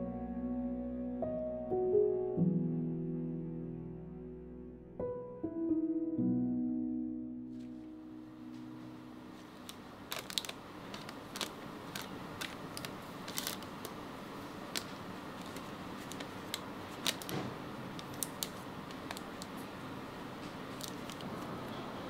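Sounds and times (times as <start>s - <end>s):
low background noise: 7.5s - 22.0s.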